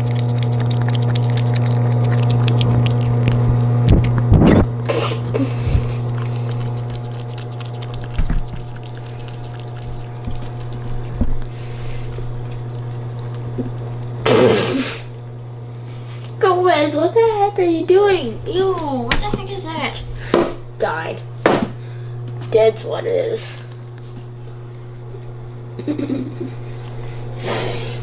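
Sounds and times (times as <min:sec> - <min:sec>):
kitten lapping water: 0:00.0 - 0:04.4, 0:05.4 - 0:14.2
steady low hum: 0:00.0 - 0:28.0.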